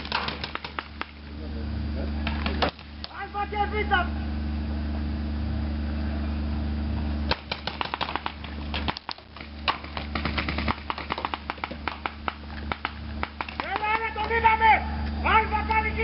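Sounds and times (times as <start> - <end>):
paintball markers firing: 0.0 - 1.2, 2.2 - 3.2, 7.3 - 14.2.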